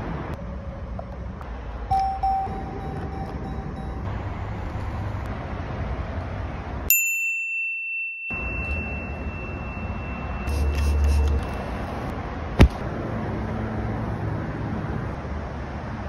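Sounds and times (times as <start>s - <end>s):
bright bell ding: 1.9s - 4.1s, 6.9s - 11.5s.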